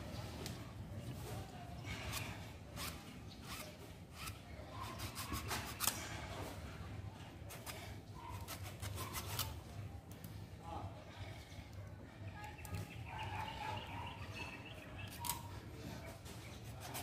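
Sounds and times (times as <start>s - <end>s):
hands scraping copper wire: 1.8s - 6.3s, 7.4s - 10.2s, 16.4s - 17.0s.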